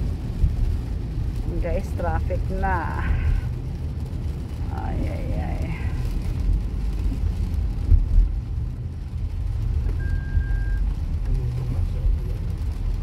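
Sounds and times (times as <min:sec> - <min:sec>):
car road and engine rumble: 0:00.0 - 0:13.0
short high-pitched beep: 0:10.0 - 0:10.8.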